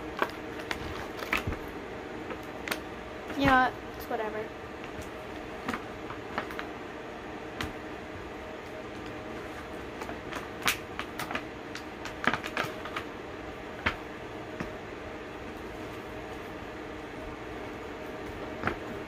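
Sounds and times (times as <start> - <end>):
steady low hum: 0.0 - 19.0
bath bombs clicking and tapping: 10.0 - 13.1.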